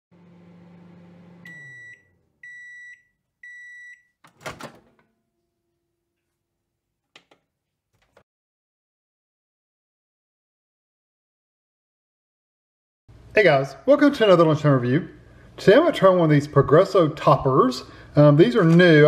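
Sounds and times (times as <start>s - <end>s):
microwave oven humming: 0.1s - 5.6s.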